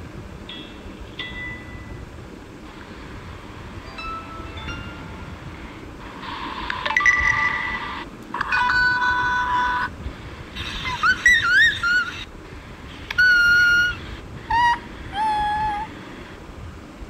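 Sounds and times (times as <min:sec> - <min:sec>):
held ringing note: 0:03.8 - 0:05.7
phone notification chime: 0:03.9 - 0:05.4.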